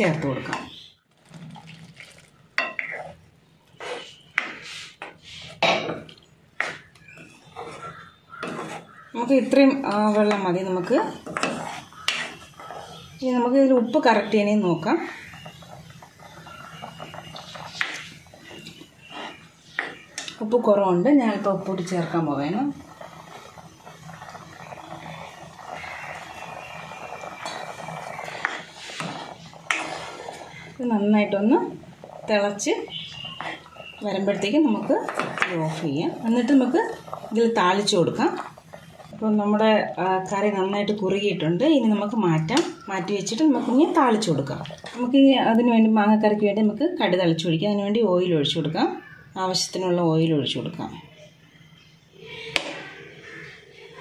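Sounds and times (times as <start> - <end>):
spatula scraping a wok: 2.2 - 5.6, 6.6 - 20.6, 21.3 - 42.0, 43.0 - 45.3.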